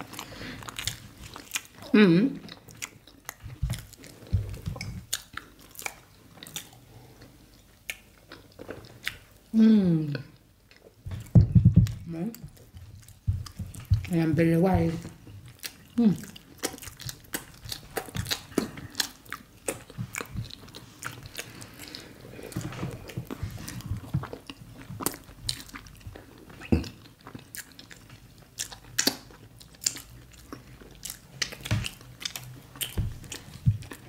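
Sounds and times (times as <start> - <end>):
wet chewing: 0.0 - 9.4, 10.7 - 34.0.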